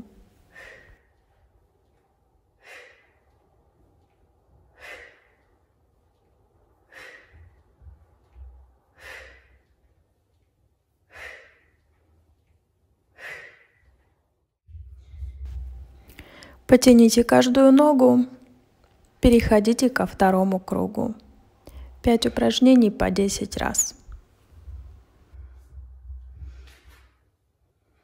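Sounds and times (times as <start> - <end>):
woman breathing out hard: 8.9 - 9.6, 11.1 - 11.7, 13.1 - 13.8.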